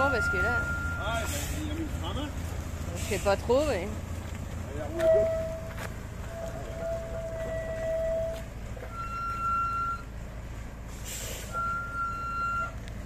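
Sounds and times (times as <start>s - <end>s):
high-pitched beeps: 0.0s - 1.2s, 8.9s - 10.1s
bus engine running low: 0.0s - 13.0s
short hiss: 10.9s - 11.6s.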